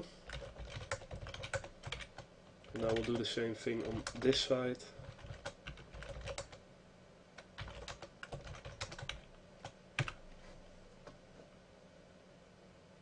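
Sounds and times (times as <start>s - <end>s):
keyboard typing: 0.2s - 4.4s, 5.0s - 6.6s, 7.4s - 10.2s.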